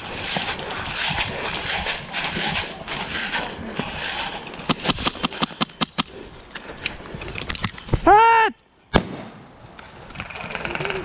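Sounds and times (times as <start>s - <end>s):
rustling footsteps: 0.0s - 8.0s
person shouting: 8.0s - 8.6s
airsoft gunfire cracks: 8.9s - 9.5s.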